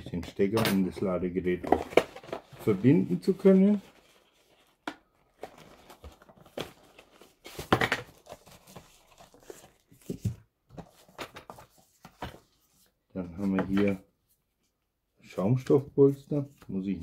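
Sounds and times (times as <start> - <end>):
cardboard box rustling: 1.6 - 12.6.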